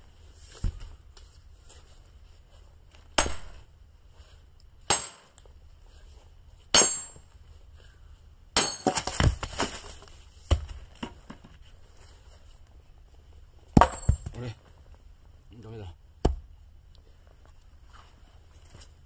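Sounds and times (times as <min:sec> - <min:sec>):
hammer striking steel wedge: 0:03.2 - 0:03.7, 0:04.9 - 0:05.5, 0:06.8 - 0:07.3.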